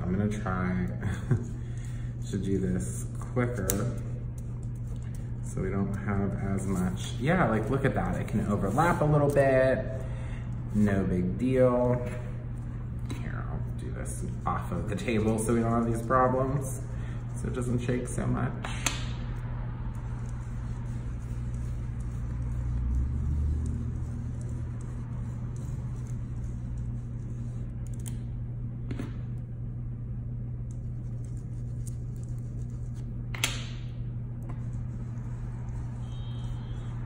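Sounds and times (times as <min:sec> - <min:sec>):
constant low hum: 0:00.0 - 0:37.0
ink tool rubbing on paper: 0:03.6 - 0:09.9, 0:19.9 - 0:27.7, 0:34.6 - 0:37.0.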